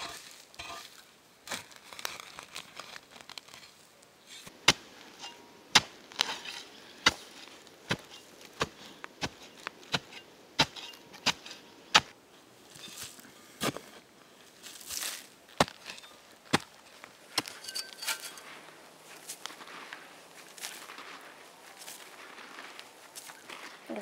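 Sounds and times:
shovel blade striking soil: 0.0s - 1.7s, 4.3s - 12.2s, 17.4s - 18.4s
shovel scraping soil: 0.0s - 2.6s, 3.3s - 13.9s, 14.6s - 18.6s.

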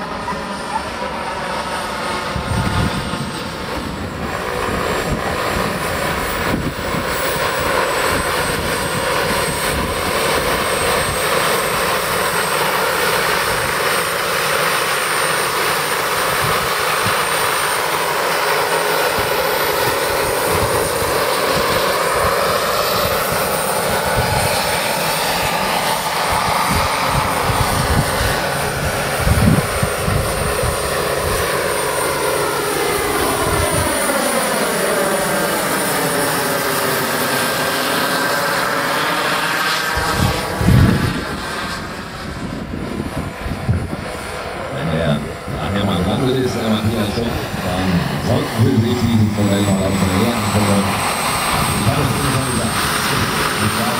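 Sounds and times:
model helicopter motor and rotor whine: 0.0s - 53.9s
wind thumps on microphone: 40.0s - 41.4s, 42.3s - 44.2s.

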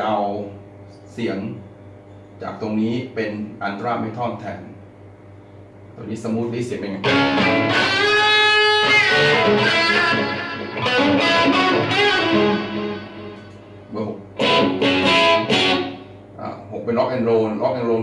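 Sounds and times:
electric guitar lead notes: 7.0s - 16.4s.

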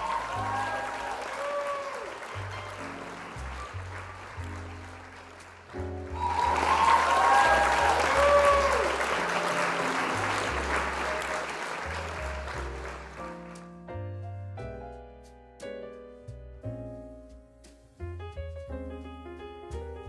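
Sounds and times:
applause with whoops: 0.0s - 13.6s.

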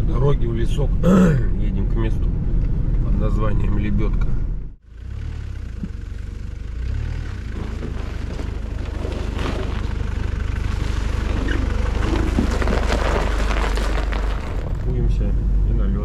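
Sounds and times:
engine rumble: 0.0s - 16.0s
tyres crunching on snow: 5.1s - 15.3s.

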